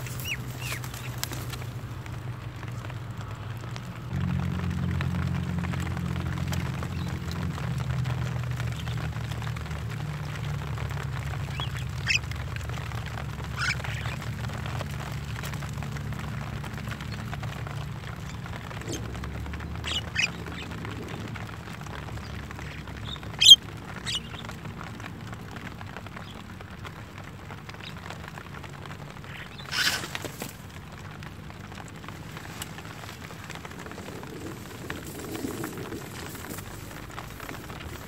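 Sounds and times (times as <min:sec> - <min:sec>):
birds giving short high calls: 0:00.0 - 0:01.7, 0:11.4 - 0:12.6, 0:13.4 - 0:14.3, 0:18.3 - 0:24.6, 0:29.2 - 0:30.5
steady low rumble: 0:00.0 - 0:38.0.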